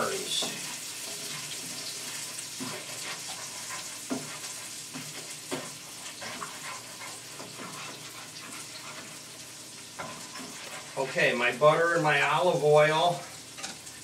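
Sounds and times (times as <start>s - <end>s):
food sizzling in a frying pan: 0.0s - 14.0s.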